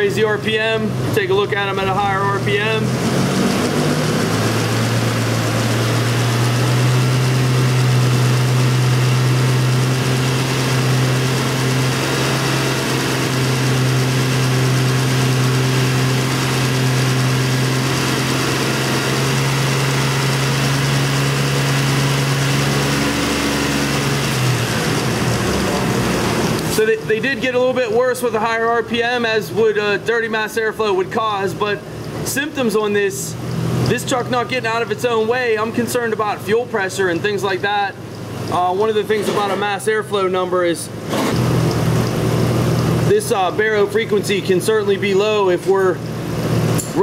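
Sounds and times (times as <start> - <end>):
engine running at raised revs: 0.0 - 28.9, 40.2 - 47.0.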